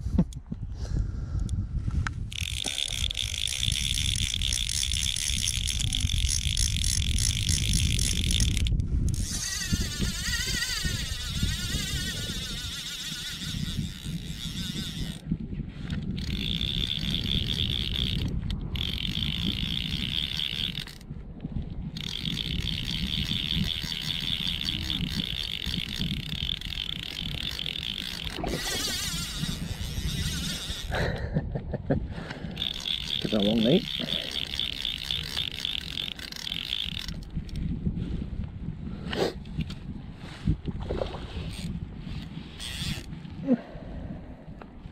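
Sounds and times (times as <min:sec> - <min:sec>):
wind rumbling on microphone: 0:00.0 - 0:44.9
fishing reel ratcheting: 0:02.2 - 0:21.2, 0:21.8 - 0:31.2, 0:32.5 - 0:37.7, 0:41.4 - 0:43.2.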